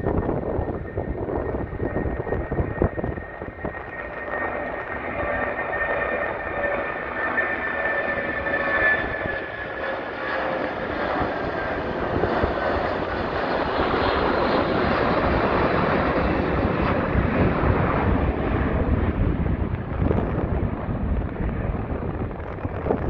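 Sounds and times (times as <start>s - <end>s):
jet engine roar: 0.0s - 23.0s.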